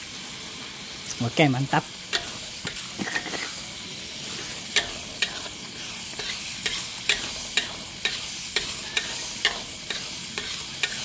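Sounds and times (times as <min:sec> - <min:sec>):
tomatoes sizzling in oil: 0:00.0 - 0:11.0
spatula knocking and scraping pan: 0:02.1 - 0:03.6, 0:04.3 - 0:11.0.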